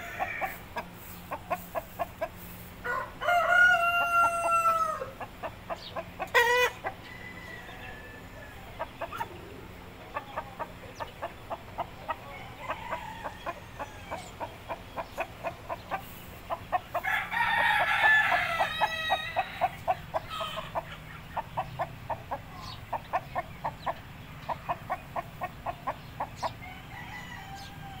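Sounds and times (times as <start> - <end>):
rooster crowing: 0.0 - 0.6, 2.8 - 5.2, 6.4 - 8.5, 12.3 - 14.3, 17.0 - 20.7, 26.6 - 28.0
rooster clucking: 0.0 - 28.0.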